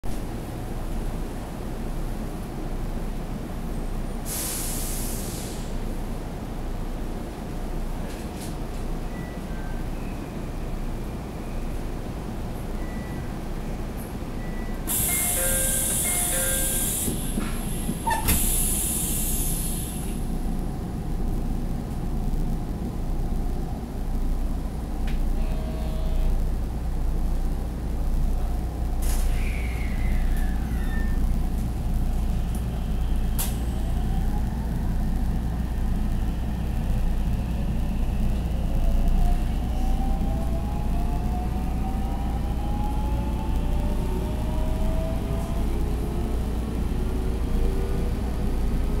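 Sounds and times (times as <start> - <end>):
train low rumble: 0.0 - 49.0
loud air hiss: 4.3 - 5.8, 14.9 - 20.2.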